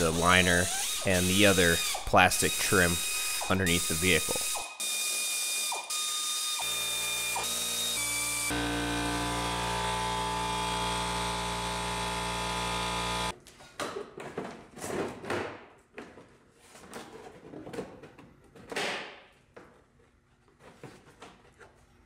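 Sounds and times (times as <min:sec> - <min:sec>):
power tool humming: 0:00.0 - 0:13.3.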